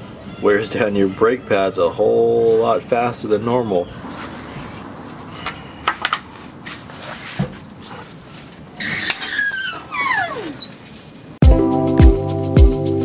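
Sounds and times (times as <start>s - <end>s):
squeaks sliding down in pitch: 8.8s - 10.8s.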